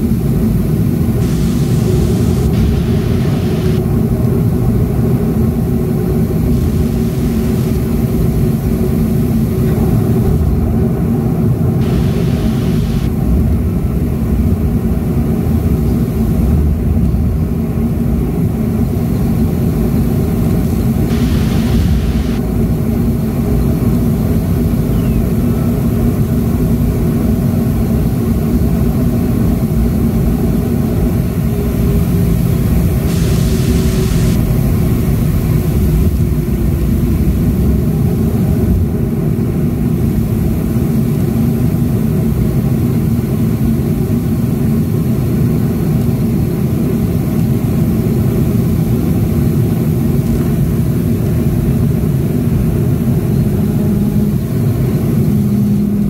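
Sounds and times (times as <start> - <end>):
jet engines rumbling while taxiing: 0.0 - 56.0
brief hiss: 1.2 - 3.8, 11.8 - 13.1, 20.7 - 22.4, 33.1 - 35.9.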